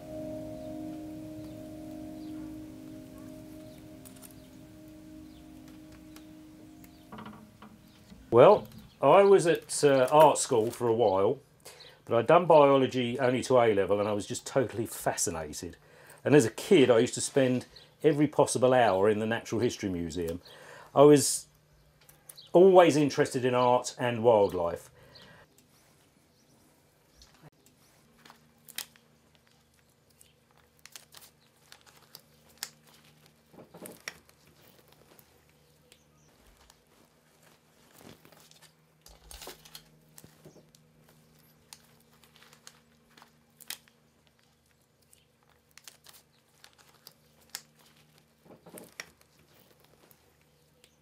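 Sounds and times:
faint low hum: 0:00.0 - 0:51.0
newspaper rustling: 0:27.4 - 0:50.7.

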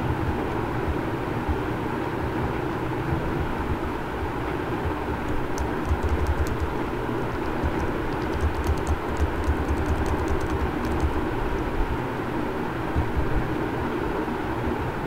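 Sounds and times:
low background rumble: 0:00.0 - 0:14.5
faint quick computer clicks: 0:05.3 - 0:11.2.

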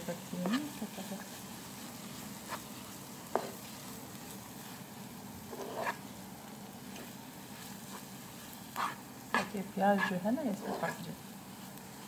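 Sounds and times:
food sizzling in oil in a pan: 0:00.0 - 0:12.0
spatula stirring: 0:00.1 - 0:12.0.

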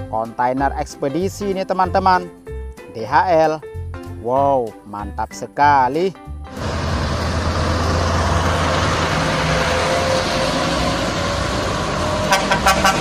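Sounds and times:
heavy trucks driving by: 0:06.5 - 0:13.0.

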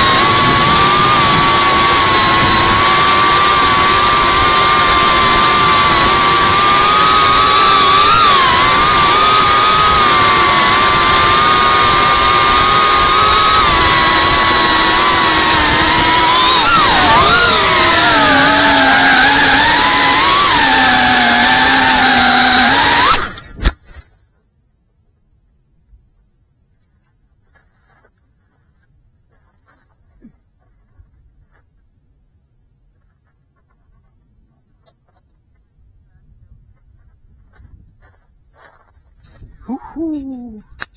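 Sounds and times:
drone motors whining: 0:00.0 - 0:23.8.

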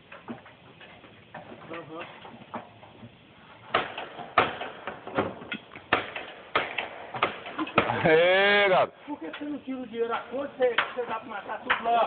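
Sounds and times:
hammer driving nails: 0:03.7 - 0:07.9.

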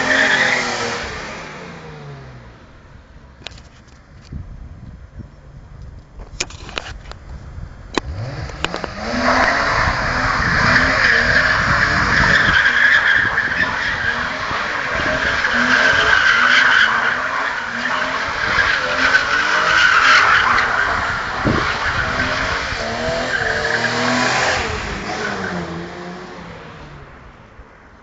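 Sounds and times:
car engine revving: 0:00.0 - 0:02.8, 0:07.9 - 0:27.4.

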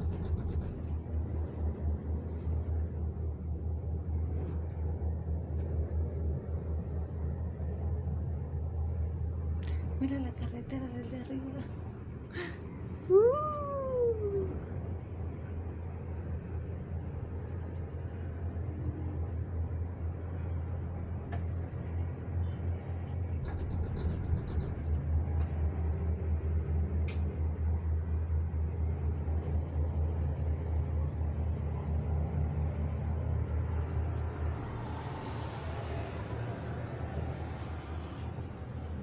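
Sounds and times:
low rumble in cable car cabin: 0:00.0 - 0:39.0.

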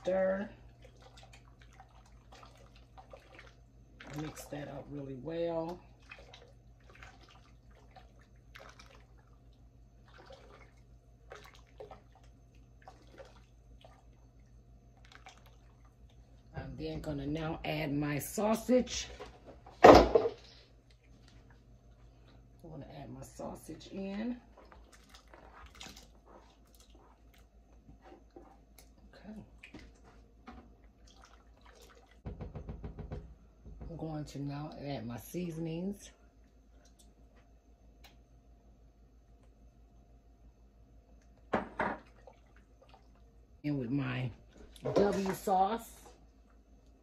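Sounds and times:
spatula stirring liquid in a pot: 0:00.0 - 0:16.5, 0:23.4 - 0:32.5
low steady hum: 0:00.0 - 0:47.0.

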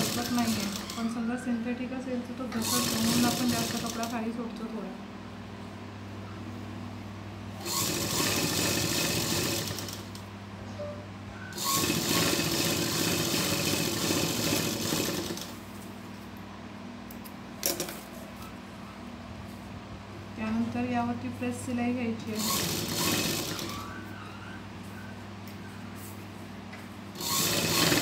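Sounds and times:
sewing machine stitching: 0:00.0 - 0:01.1, 0:02.6 - 0:04.2, 0:07.6 - 0:10.2, 0:11.6 - 0:15.5, 0:22.4 - 0:23.9, 0:27.2 - 0:28.0.

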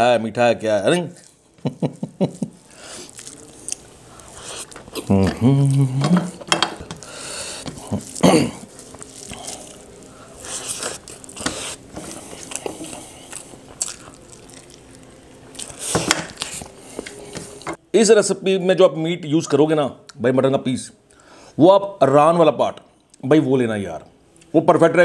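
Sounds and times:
eating noises: 0:02.4 - 0:17.6.

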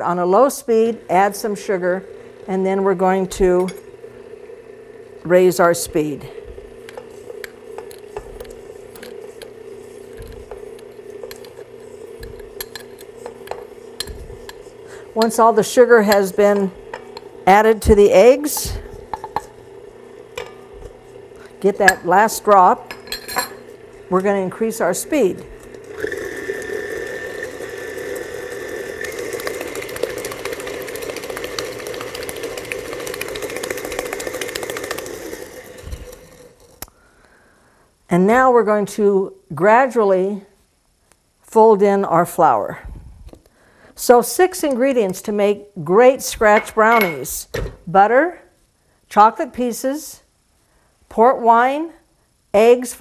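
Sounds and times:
stand mixer motor humming: 0:02.0 - 0:02.5, 0:03.3 - 0:05.3, 0:06.4 - 0:15.2, 0:25.5 - 0:36.8
stand mixer rattling: 0:25.7 - 0:36.7.

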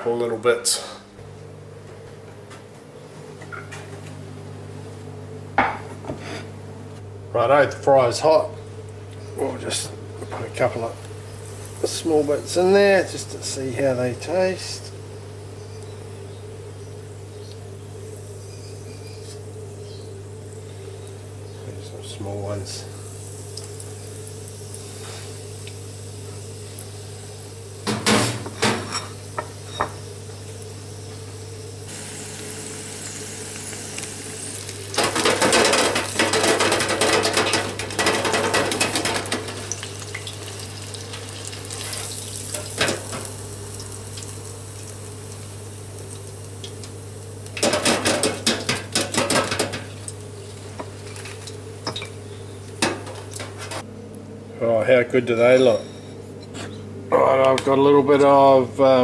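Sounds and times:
food sizzling in deep fryer: 0:11.1 - 0:21.4, 0:22.2 - 0:53.6
wire fryer basket clattering: 0:34.9 - 0:43.3, 0:47.6 - 0:50.0.

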